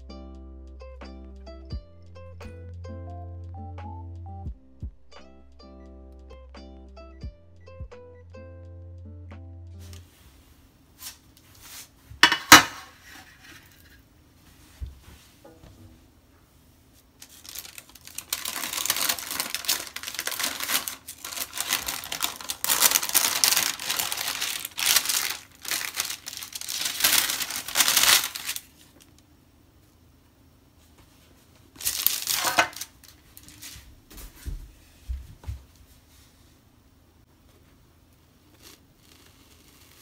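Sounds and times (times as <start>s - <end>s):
sheet material crinkling: 16.9s - 29.2s, 31.4s - 33.9s.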